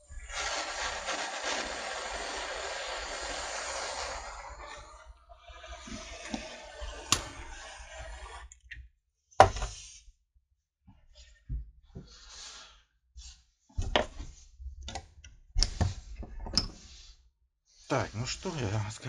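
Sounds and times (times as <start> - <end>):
gas torch hissing: 0.0 - 8.3.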